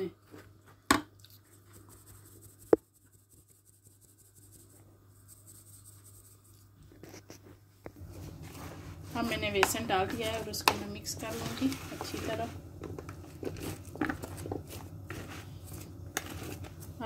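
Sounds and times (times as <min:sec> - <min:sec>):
spatula scraping flour in bowl: 0:08.1 - 0:17.0
spatula tapping bowl: 0:09.4 - 0:15.3.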